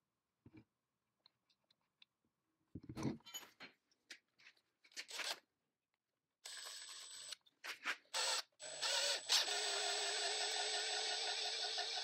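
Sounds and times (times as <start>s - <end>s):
drill whining into metal rod: 8.2s - 12.0s.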